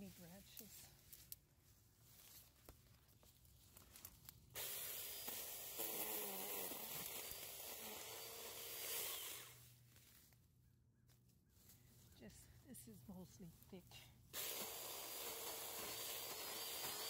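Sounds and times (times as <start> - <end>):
chainsaw cutting branches: 4.5 - 9.7, 14.3 - 17.0.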